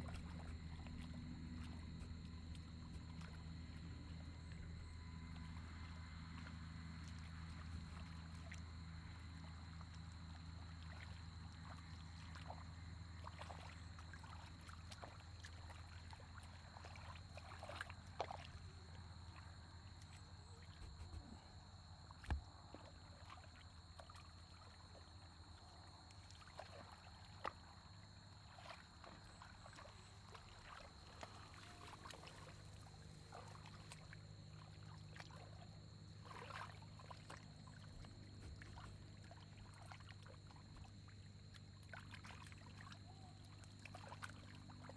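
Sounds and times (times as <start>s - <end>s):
low hum: 0.0s - 10.4s
muddy water sloshing: 0.0s - 44.9s.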